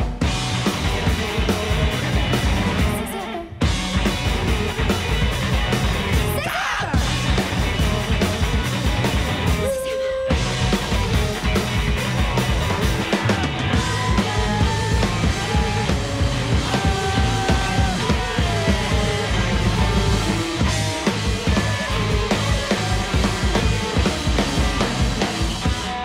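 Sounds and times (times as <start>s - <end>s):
rock band playing live: 0.0s - 26.0s.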